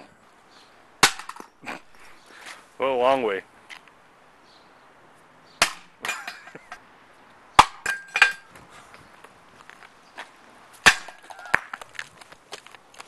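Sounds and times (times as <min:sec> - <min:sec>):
brick smashing with cracking impacts: 0:01.0 - 0:01.5, 0:10.8 - 0:11.9
broken pieces clattering on iron: 0:06.0 - 0:06.8, 0:07.7 - 0:08.5.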